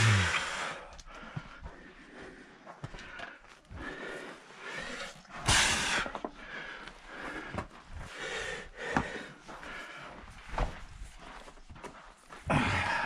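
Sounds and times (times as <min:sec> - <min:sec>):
heavy breathing: 0:00.0 - 0:11.6, 0:12.3 - 0:13.0
footsteps on rock: 0:00.8 - 0:04.0.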